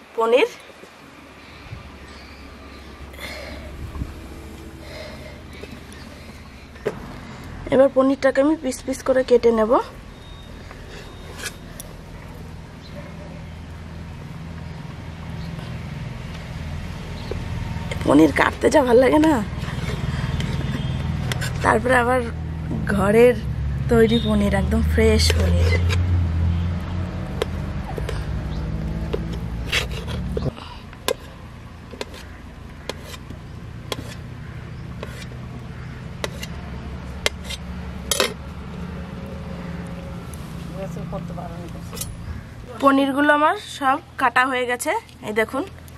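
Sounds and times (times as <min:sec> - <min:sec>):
steady low hum: 0:01.0 - 0:08.0
engine low steady drone: 0:01.1 - 0:42.8.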